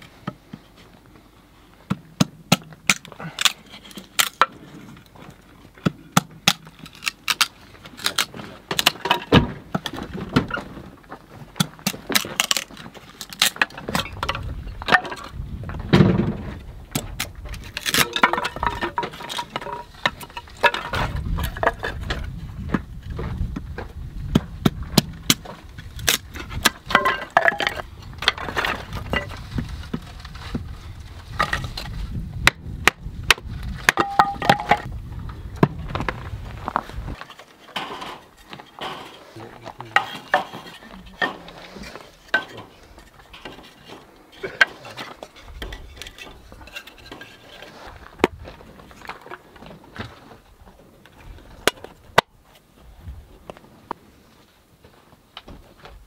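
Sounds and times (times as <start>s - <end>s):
wood pieces clattering: 6.5s - 15.4s, 16.0s - 22.3s, 25.3s - 32.0s, 33.8s - 34.9s, 37.1s - 39.2s, 39.9s - 50.2s
knife splitting kindling: 11.6s - 14.2s, 17.0s - 21.7s.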